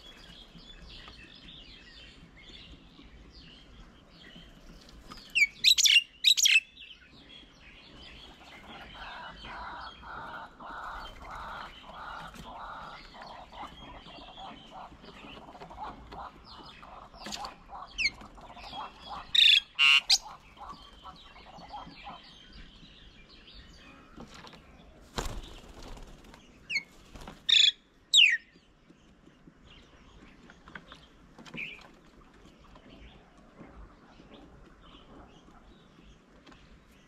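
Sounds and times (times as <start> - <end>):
busy bird chatter: 0.0 - 37.0
mynas calling: 15.7 - 22.2
bird landing flutter: 24.2 - 26.4.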